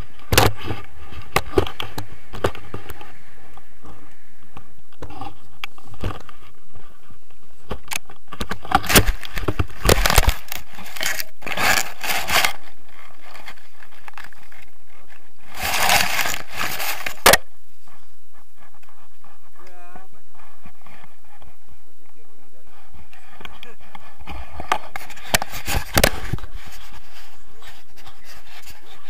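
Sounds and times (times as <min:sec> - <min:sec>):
harness scraping on grass: 0:08.6 - 0:29.0.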